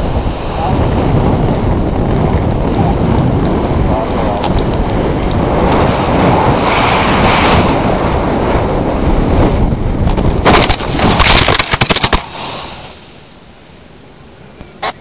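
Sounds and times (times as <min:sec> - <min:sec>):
wind rushing over microphone: 0:00.0 - 0:15.0
crashing into bushes: 0:10.1 - 0:12.8.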